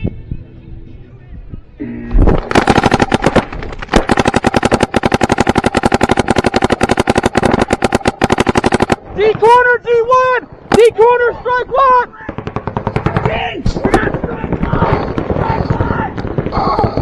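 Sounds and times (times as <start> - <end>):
paintball markers firing rapidly: 2.4 - 9.0, 12.3 - 17.0.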